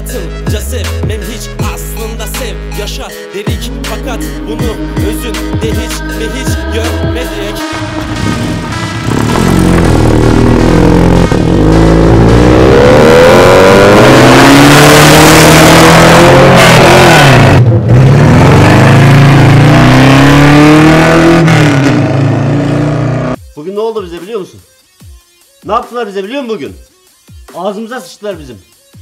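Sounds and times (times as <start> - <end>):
car engine revving hard: 7.6 - 23.4.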